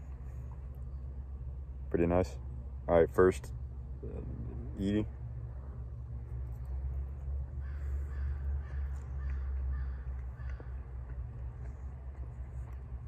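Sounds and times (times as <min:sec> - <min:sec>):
steady low rumble: 0:00.0 - 0:13.0
crows cawing: 0:07.5 - 0:10.9.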